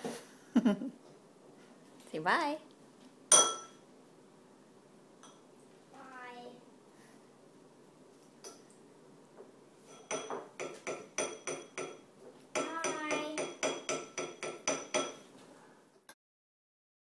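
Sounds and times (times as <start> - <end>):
spoons clinking against dishes: 3.3 - 3.8, 9.8 - 15.3.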